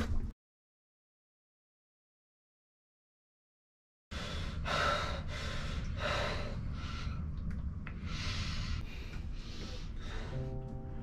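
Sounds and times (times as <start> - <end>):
steady low hum: 4.2 - 11.0.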